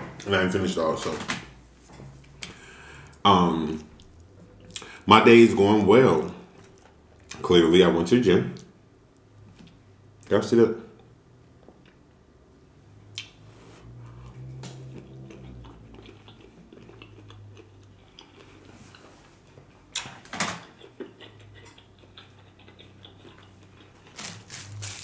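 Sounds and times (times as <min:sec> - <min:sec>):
close-miked chewing: 0:14.0 - 0:25.0
mouth smacks: 0:20.0 - 0:24.2.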